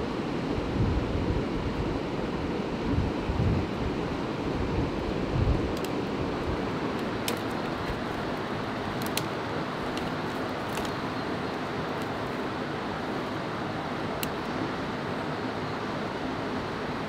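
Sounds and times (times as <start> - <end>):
waterfall: 0.0 - 17.0
river water rushing: 3.8 - 17.0
dry twigs snapping: 5.7 - 6.0, 6.9 - 12.4, 14.2 - 14.4.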